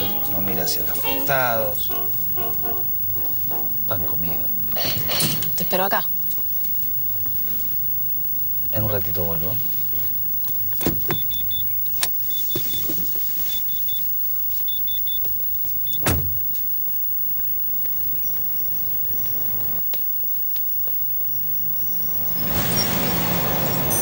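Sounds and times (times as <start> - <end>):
low background hum: 0.0 - 24.0
car door slamming: 16.0 - 16.5.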